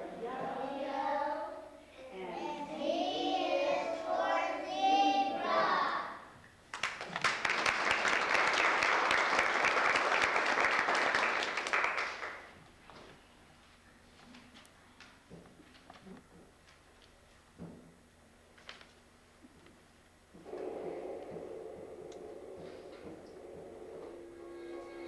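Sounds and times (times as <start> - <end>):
children singing together: 0.0 - 6.3
audience applause: 6.7 - 12.6.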